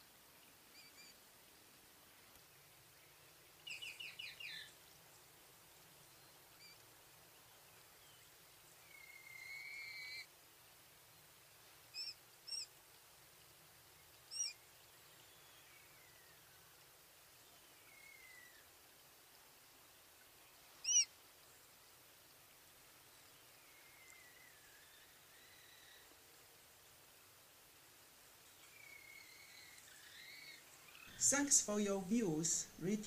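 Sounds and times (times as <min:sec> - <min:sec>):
quail chick peeping: 0:20.8 - 0:21.1.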